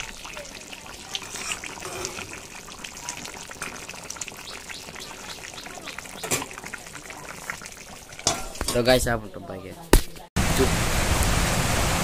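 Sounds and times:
ladle stirring: 0.0s - 9.1s
curry bubbling and sizzling: 0.0s - 9.2s.

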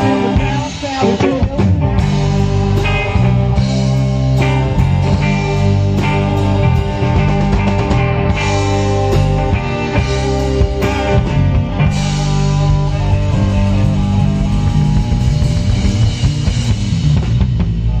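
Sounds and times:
drum kit with crashing cymbals: 0.0s - 18.0s
electric bass: 0.0s - 18.0s
electric guitars: 0.0s - 18.0s.

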